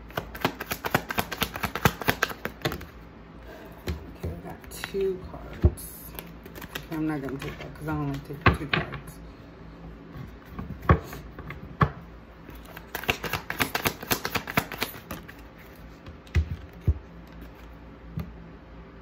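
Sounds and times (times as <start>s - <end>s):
cards being shuffled: 0.0s - 3.0s, 4.6s - 8.5s, 12.5s - 17.8s.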